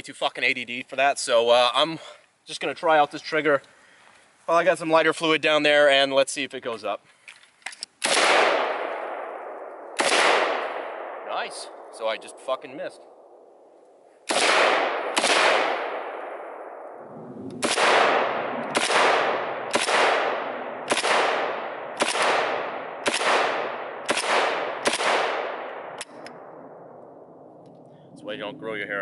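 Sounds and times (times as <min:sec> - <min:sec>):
rifle shots with echo: 0:08.0 - 0:27.6.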